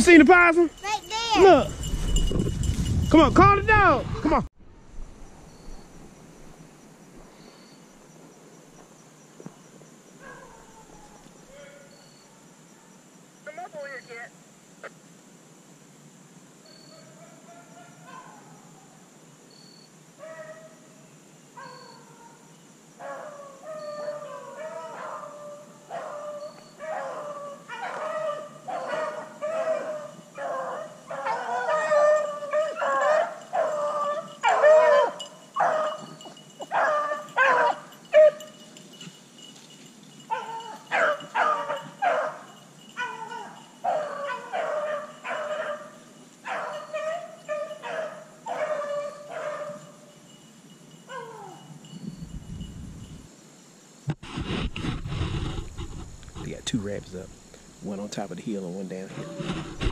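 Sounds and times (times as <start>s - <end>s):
hounds baying: 10.2s - 12.4s, 16.9s - 18.7s, 23.0s - 50.2s, 51.0s - 51.9s.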